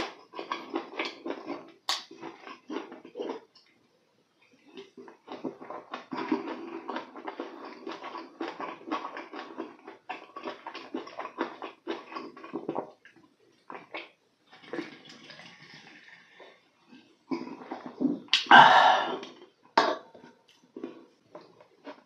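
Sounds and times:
wet mouth eating sounds: 0.0s - 3.7s, 4.7s - 22.0s
drinking from a can: 17.3s - 19.9s.

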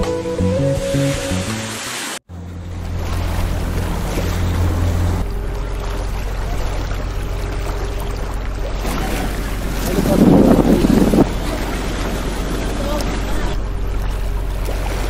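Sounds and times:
boat engine humming: 0.0s - 15.0s
rushing water: 0.0s - 15.0s
wind: 0.0s - 15.0s
wind buffeting microphone: 8.8s - 14.0s.

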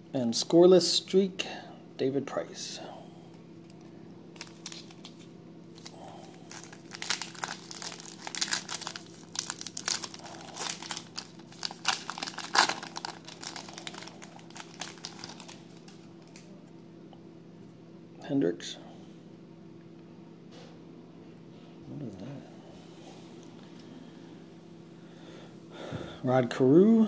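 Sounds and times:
foil wrapper crinkling and tearing: 4.4s - 16.5s.

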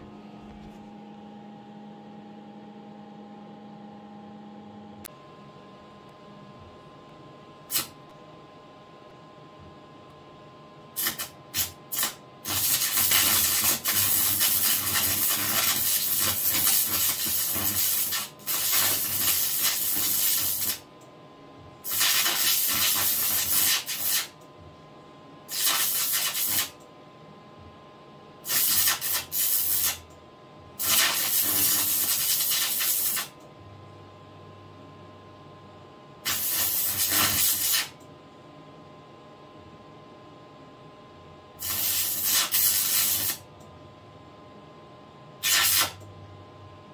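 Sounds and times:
electrical hum: 0.0s - 46.9s
loud arc hiss: 7.7s - 8.0s, 11.0s - 20.9s, 21.8s - 24.4s, 25.5s - 26.8s, 28.4s - 30.0s, 30.8s - 33.4s, 36.2s - 38.0s, 41.6s - 43.4s, 45.4s - 46.0s
arc lamp sputtering: 11.0s - 20.8s.

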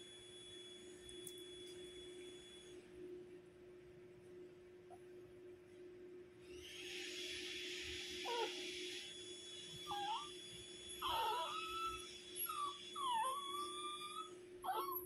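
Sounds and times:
puppy whining howls: 8.2s - 8.8s, 9.8s - 15.0s.

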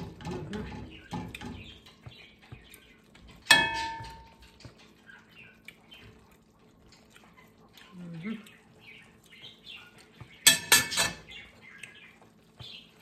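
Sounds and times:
ladle clanging on pan: 0.0s - 1.8s, 3.4s - 4.7s, 10.4s - 11.3s.

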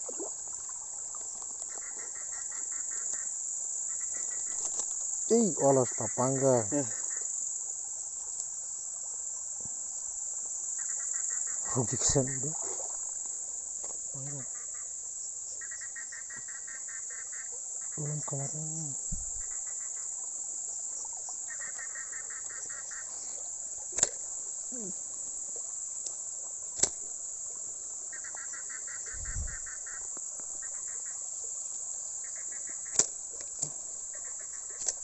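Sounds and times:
crickets droning: 0.0s - 35.0s
insect pulsing trill: 0.0s - 35.0s
sharp clicks: 26.8s - 27.0s, 32.9s - 33.7s, 34.7s - 35.0s.

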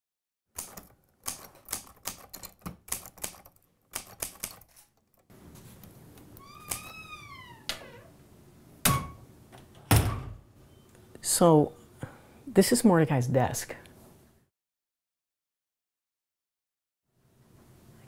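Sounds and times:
typewriter keys clacking: 0.6s - 5.3s.

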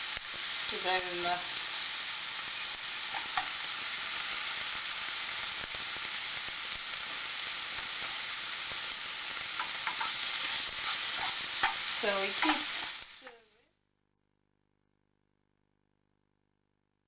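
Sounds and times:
meat sizzling in frying pan: 0.0s - 13.4s
spatula turning food in pan: 0.0s - 13.4s.

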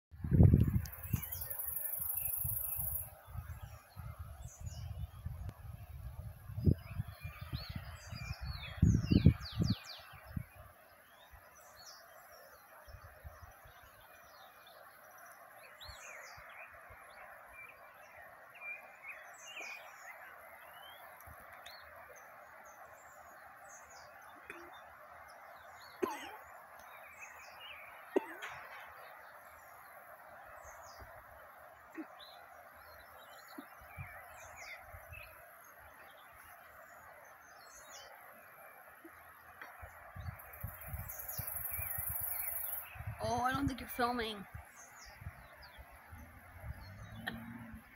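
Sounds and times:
wind buffeting microphone: 0.2s - 1.6s, 2.2s - 10.7s, 39.8s - 47.9s
birds chirping and calling: 13.9s - 47.9s.

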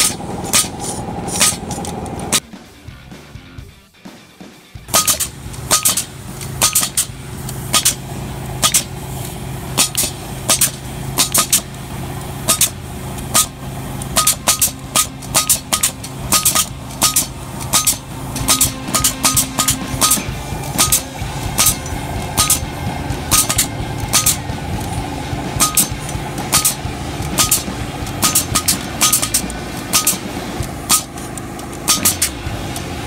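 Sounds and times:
pneumatic staplers firing: 0.0s - 2.5s, 4.9s - 33.0s
steady machine hum: 0.0s - 3.7s, 4.8s - 33.0s.

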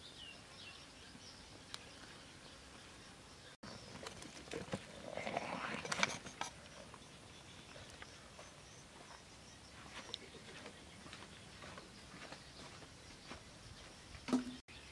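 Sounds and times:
light tapping on bamboo: 14.2s - 14.6s.

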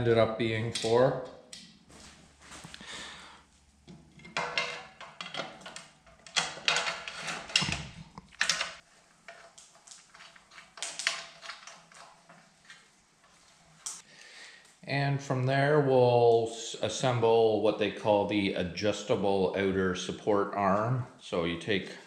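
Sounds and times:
metal parts clinking and knocking: 4.1s - 9.5s.

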